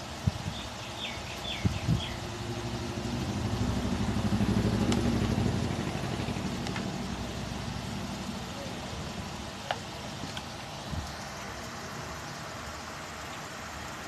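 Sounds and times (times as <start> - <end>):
vehicle engine passing by: 2.0 - 9.4.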